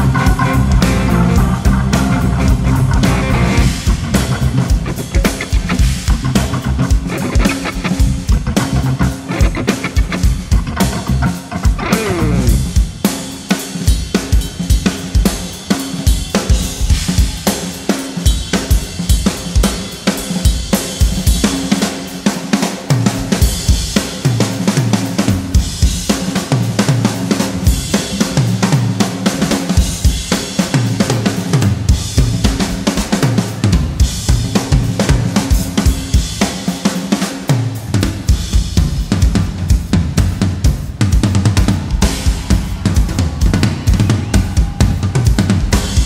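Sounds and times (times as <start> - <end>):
sustained low bass notes: 0.0 - 4.9, 5.6 - 9.2, 10.3 - 12.8
rock drum kit played fast: 0.0 - 46.0.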